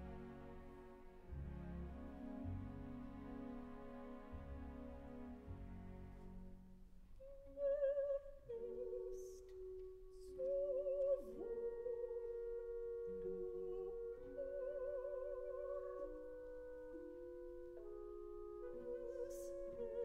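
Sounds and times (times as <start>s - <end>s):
orchestral chords: 0.0s - 7.0s
opera singer with vibrato: 7.2s - 20.0s.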